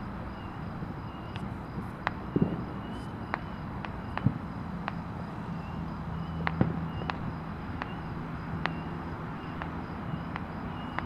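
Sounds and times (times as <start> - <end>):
freeway traffic hum: 0.0 - 11.0
distant fireworks popping: 0.3 - 11.0
faint high chirps: 2.1 - 4.3, 7.8 - 11.0.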